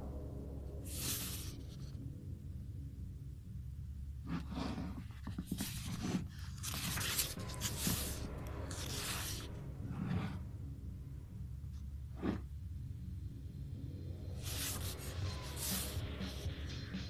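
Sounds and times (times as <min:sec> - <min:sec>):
magazine pages rustling: 0:05.2 - 0:09.5.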